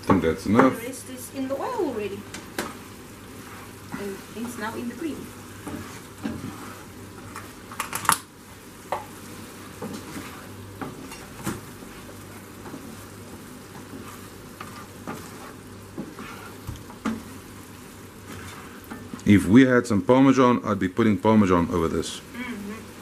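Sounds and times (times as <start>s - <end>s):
food sizzling: 0.0s - 23.0s
spatula scraping frying pan: 2.4s - 8.1s, 8.8s - 19.3s.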